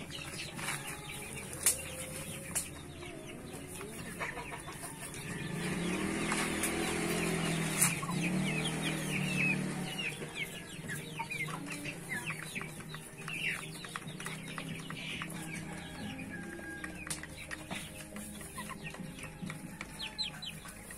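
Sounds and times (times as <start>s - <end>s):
chickens clucking and chirping: 0.0s - 20.9s.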